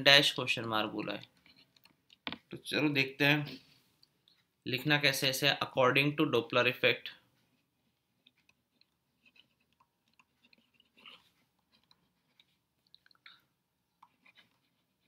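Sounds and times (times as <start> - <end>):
stylus writing on tablet screen: 4.3 - 12.9, 13.7 - 15.0.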